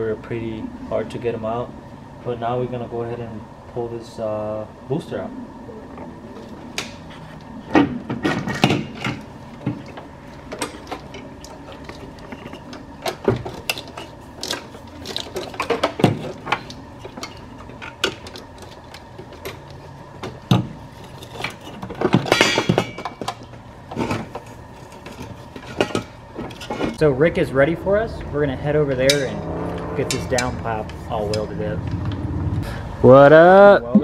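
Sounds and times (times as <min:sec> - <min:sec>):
metal clunks and scrapes: 0:06.4 - 0:27.0.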